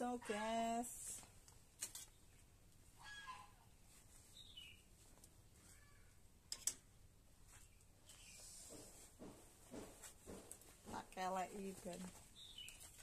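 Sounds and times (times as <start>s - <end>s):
faint bird calls: 3.0s - 3.7s, 5.6s - 6.2s.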